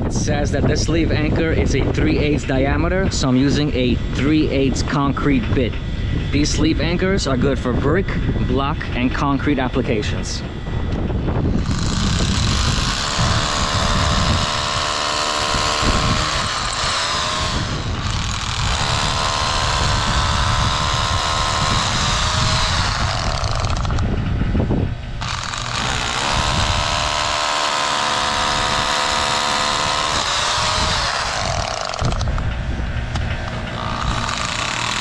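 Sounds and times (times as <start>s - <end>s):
rotary hammer drilling into brick: 11.5s - 24.1s, 25.2s - 32.5s, 33.8s - 35.0s.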